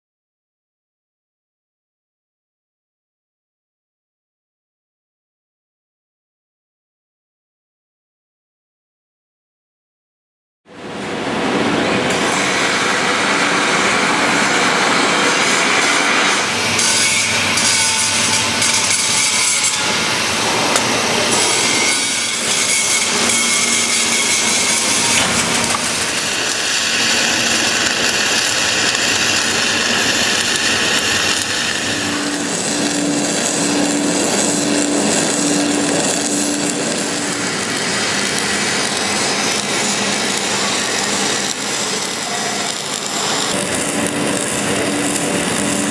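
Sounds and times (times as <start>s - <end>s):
welding arc crackling hiss: 12.1s - 45.9s.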